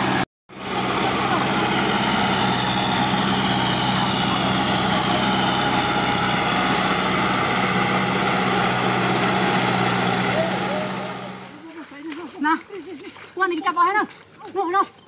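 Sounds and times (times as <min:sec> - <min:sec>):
tractor diesel engine humming: 0:00.0 - 0:11.8.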